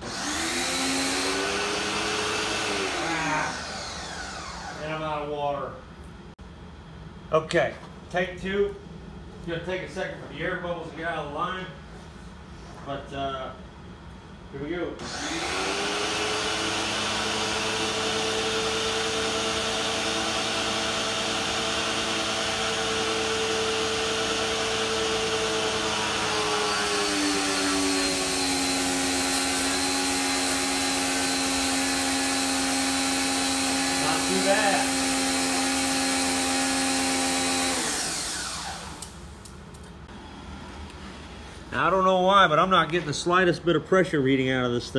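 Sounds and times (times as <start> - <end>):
pressure washer motor whine: 0.0 - 5.3, 15.0 - 39.4.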